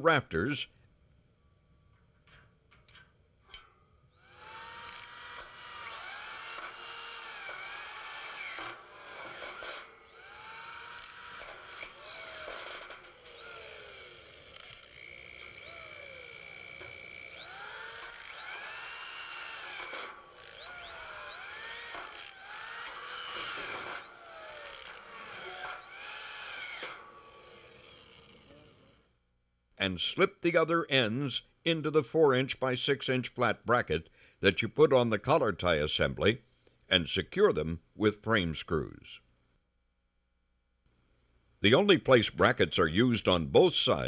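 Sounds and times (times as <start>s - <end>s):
electric drill motor whining: 4.1s - 29.1s.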